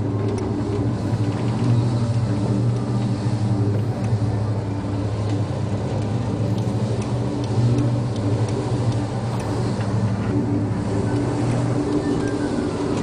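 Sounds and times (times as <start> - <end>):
ship engines droning: 0.0 - 13.0
wind and sea noise: 0.0 - 13.0
faint ticks: 5.2 - 10.4.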